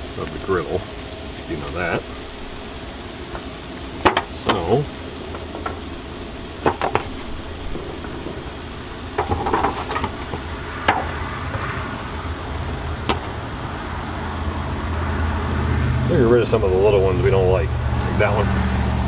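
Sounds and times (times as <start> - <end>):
steady low hum: 0.0 - 19.0
sweet potato slices sizzling: 0.0 - 19.0
slices tapping on griddle: 3.3 - 4.7, 5.3 - 5.9, 6.6 - 11.8, 12.7 - 13.4.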